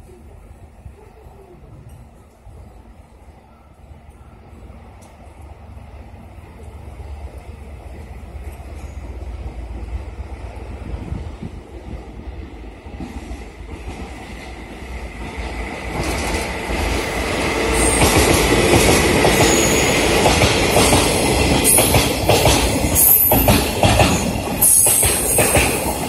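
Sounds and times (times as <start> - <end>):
diesel locomotive passing: 0.0 - 26.0
rail-joint clatter: 15.4 - 17.1, 17.7 - 26.0
high wheel squeal: 19.3 - 20.1.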